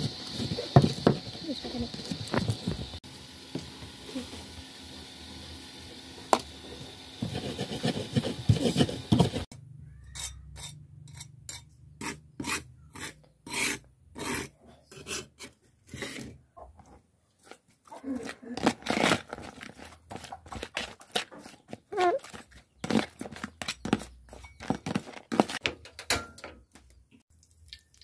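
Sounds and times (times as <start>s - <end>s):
stone pestle grinding in mortar: 7.2s - 9.5s
metal spatula scraping paste: 7.2s - 16.4s.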